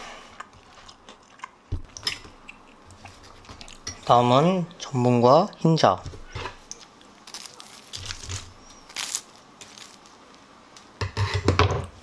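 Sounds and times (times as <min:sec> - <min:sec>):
crisp crunches of fried meat: 0:06.7 - 0:10.2.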